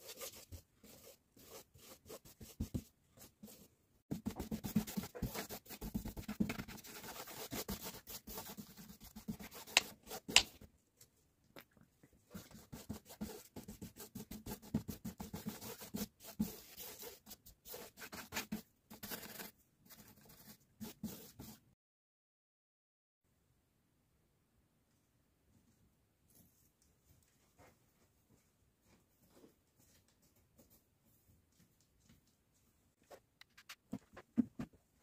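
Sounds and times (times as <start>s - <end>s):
hands scraping and rubbing materials: 4.2s - 10.6s.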